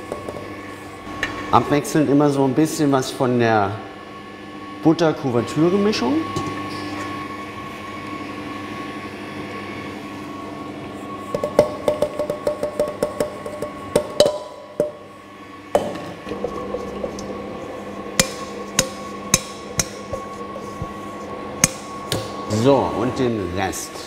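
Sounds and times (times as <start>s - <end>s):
metal bowls knocking: 11.4s - 15.0s, 18.2s - 21.0s, 21.6s - 22.4s
stand mixer motor hum: 15.0s - 23.6s.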